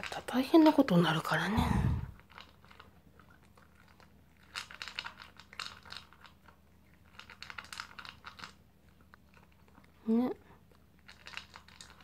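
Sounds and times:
dog crunching food: 2.2s - 10.0s, 10.6s - 12.0s.

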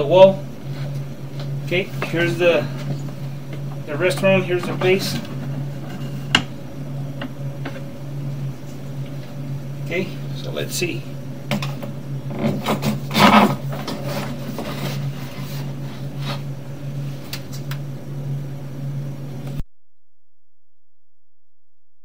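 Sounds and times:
steady low hum: 0.0s - 21.9s
cable rubbing and scraping in pipe: 12.3s - 16.5s.

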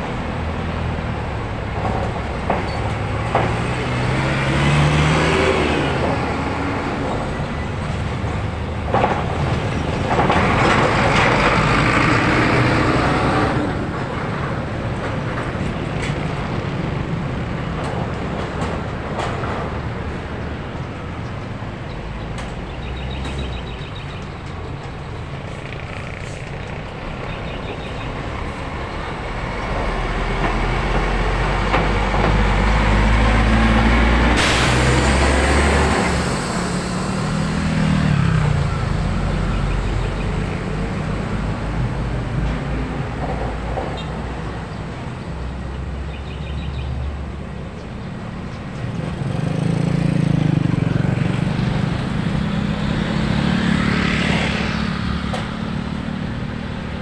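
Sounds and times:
cars and motorcycles passing: 0.0s - 57.0s
diesel truck passing: 0.0s - 57.0s
air brake hiss: 34.4s - 35.4s.

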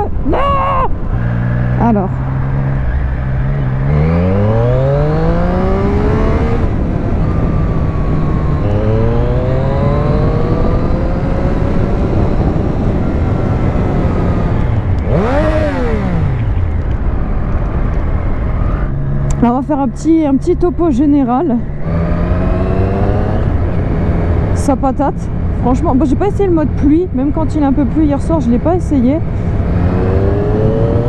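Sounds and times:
rush of riding wind: 0.0s - 31.0s
motorcycle engine revving: 1.1s - 31.0s.

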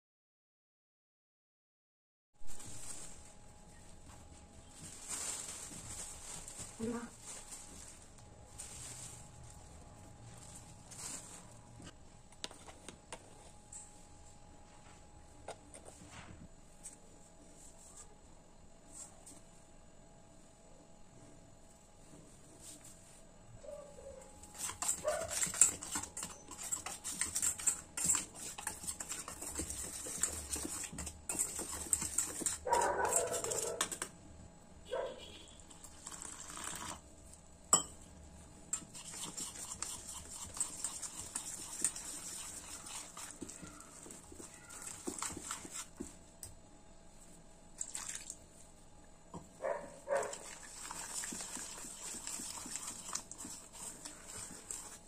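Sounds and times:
whisk clinking and scraping steel bowl: 24.5s - 34.1s, 37.7s - 38.0s, 38.7s - 46.0s, 50.3s - 55.0s.

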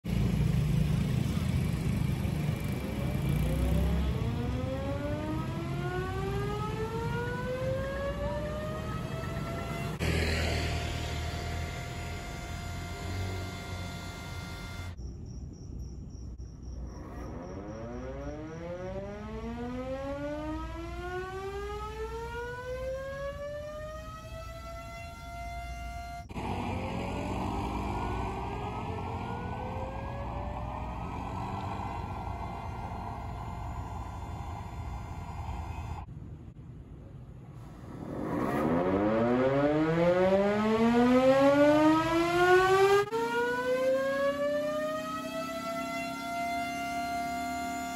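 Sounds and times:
air raid siren winding up: 2.7s - 15.0s, 17.0s - 36.1s, 38.1s - 47.9s
steady rushing noise: 26.3s - 36.6s, 37.4s - 39.9s
low rumble: 26.3s - 39.6s.

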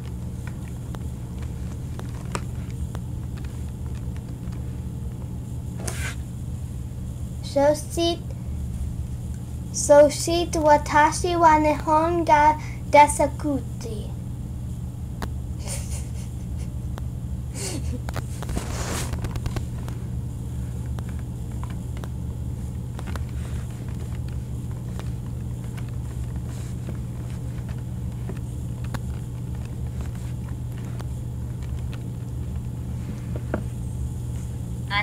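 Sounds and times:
low hum: 0.0s - 35.0s
tablet handling rustles: 0.1s - 5.2s, 18.1s - 20.0s, 20.6s - 34.5s.

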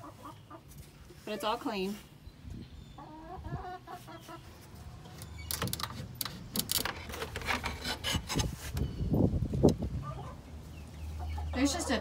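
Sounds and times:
rustling on boards and straw: 0.0s - 2.2s, 3.9s - 11.9s
hen clucking softly: 3.0s - 4.5s.

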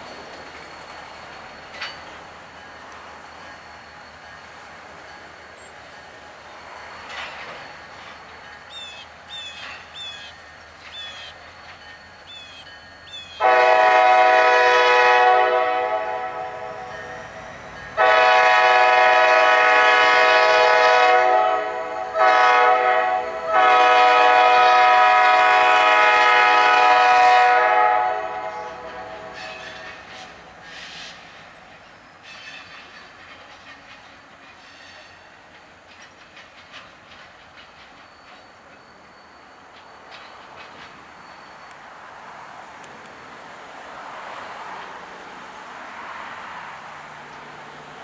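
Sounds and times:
locomotive air horn: 13.4s - 17.0s, 18.0s - 30.0s.

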